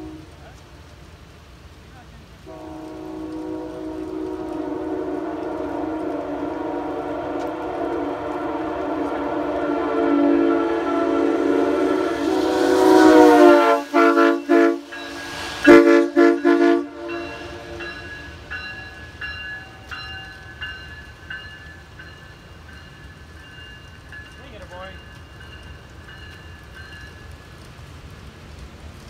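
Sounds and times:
locomotive air horn blasts: 0.0 - 0.5, 2.5 - 18.2.

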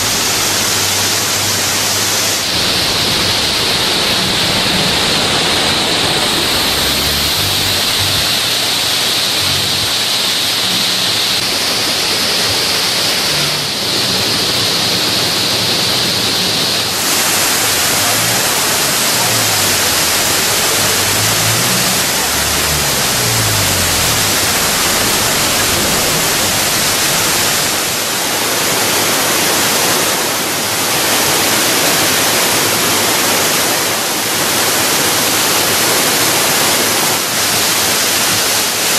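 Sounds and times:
waterfall rushing: 0.0 - 30.0.

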